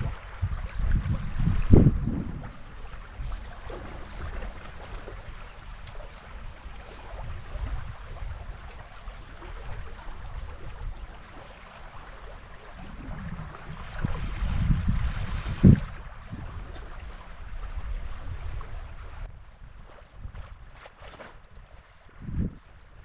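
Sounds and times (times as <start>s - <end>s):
river water over gravel: 0.0s - 23.0s
wind rumbling on microphone: 0.0s - 23.0s
fishing reel ticking: 2.8s - 8.7s, 9.4s - 12.4s, 13.2s - 18.6s.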